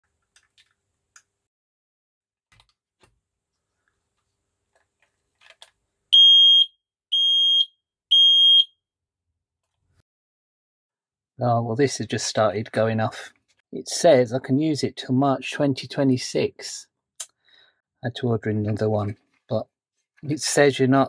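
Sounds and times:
smoke alarm beeps: 6.2s - 8.8s.

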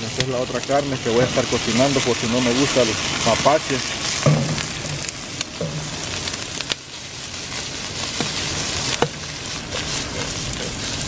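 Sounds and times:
meat sizzling in oil: 0.0s - 11.0s.

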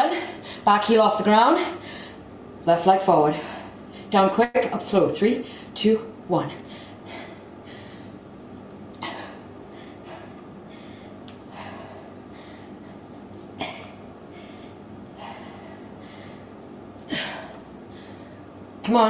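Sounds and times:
woman breathing hard: 1.6s - 2.2s, 6.6s - 8.2s, 9.0s - 18.6s.

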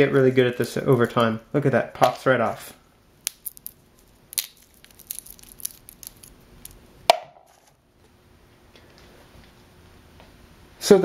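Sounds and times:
cocoa shells cracking: 3.2s - 7.5s.

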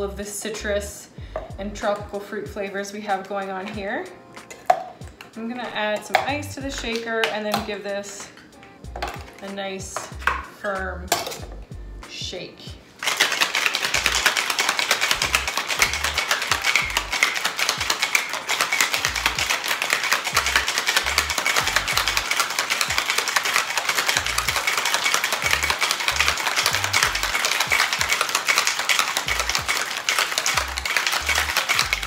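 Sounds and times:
background music: 0.0s - 32.0s
ice rattling in cocktail shaker: 13.0s - 32.0s.

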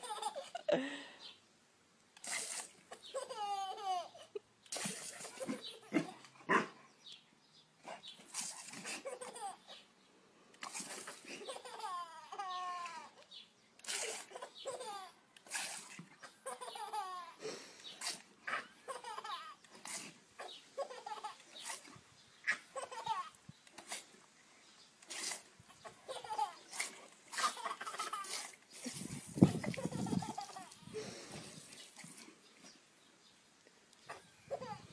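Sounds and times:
garden hose spray hissing: 2.2s - 2.9s, 26.7s - 32.2s
toddler laughing and babbling: 34.5s - 34.9s.

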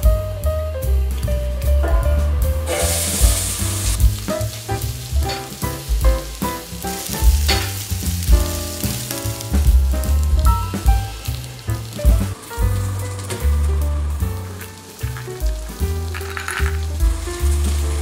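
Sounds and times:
background music with beat: 0.0s - 13.6s
onions sizzling in oil: 0.8s - 18.0s.

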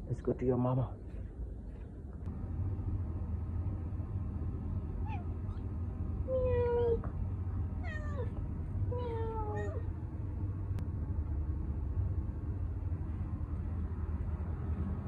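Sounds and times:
low hum: 0.8s - 15.0s
cat meowing: 5.0s - 5.6s, 7.8s - 9.9s.

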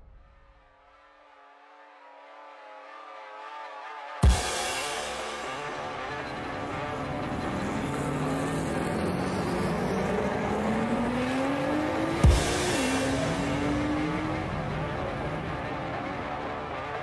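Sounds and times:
drag racing car accelerating: 5.4s - 17.0s.

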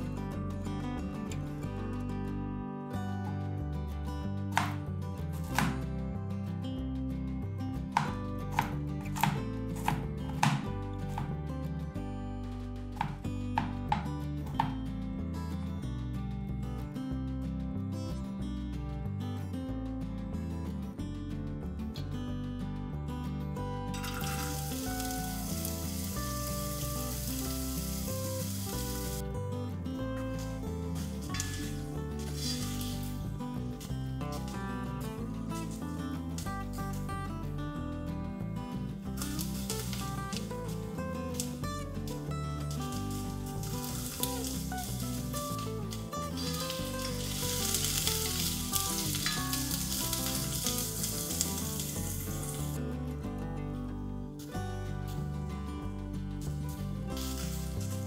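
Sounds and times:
background music: 0.0s - 58.0s
onion sizzling in hot oil: 24.0s - 29.2s, 30.4s - 33.4s, 39.1s - 52.8s, 57.1s - 58.0s.

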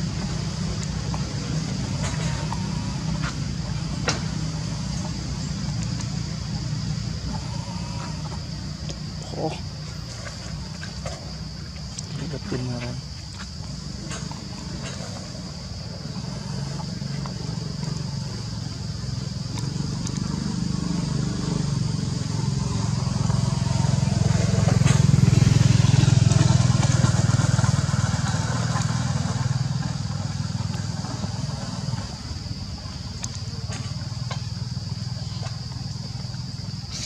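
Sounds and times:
motorbike passing by: 13.8s - 33.0s.

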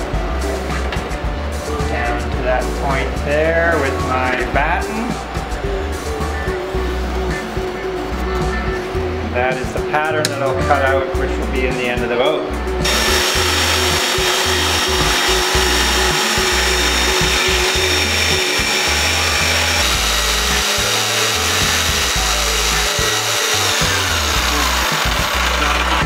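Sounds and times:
jigsaw cutting wood: 12.8s - 26.0s.

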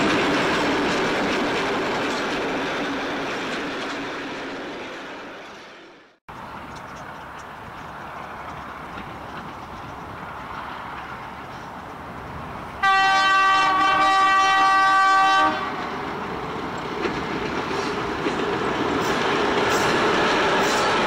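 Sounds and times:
train horn blast: 12.8s - 15.8s.

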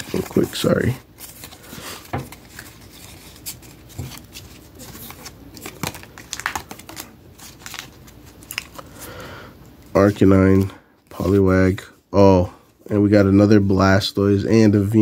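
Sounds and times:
cards being shuffled by hand: 0.0s - 9.1s.

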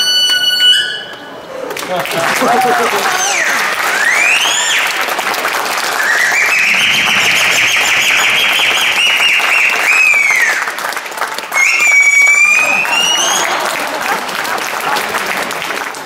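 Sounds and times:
audience applauding: 1.7s - 16.0s
high whistle-like tone: 3.3s - 5.0s, 5.9s - 10.8s, 11.6s - 13.4s.

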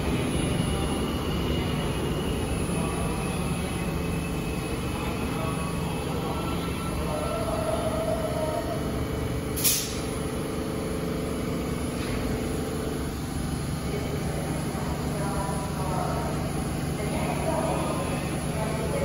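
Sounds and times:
subway train humming: 0.0s - 19.0s
air brake hiss: 9.6s - 10.1s.

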